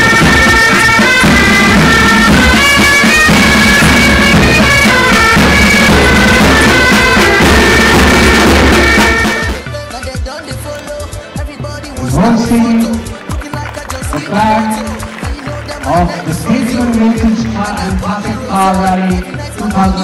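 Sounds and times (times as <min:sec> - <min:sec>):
bagpipes playing melody: 0:00.0 - 0:20.0
snare and bass drums: 0:00.0 - 0:20.0.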